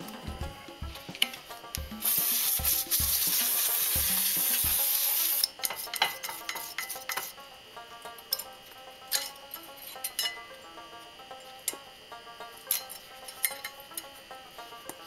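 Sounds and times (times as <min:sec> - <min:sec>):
aerosol spray hissing: 0:00.9 - 0:05.5
brush scrubbing metal: 0:02.0 - 0:07.3.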